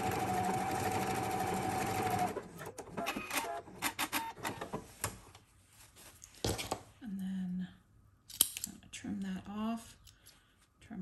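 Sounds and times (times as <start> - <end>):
electric sewing machine running: 0.0 - 3.6.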